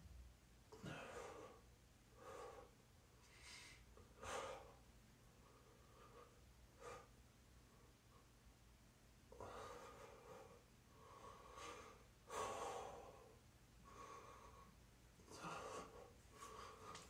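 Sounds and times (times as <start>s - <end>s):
man breathing hard: 9.3s - 17.0s.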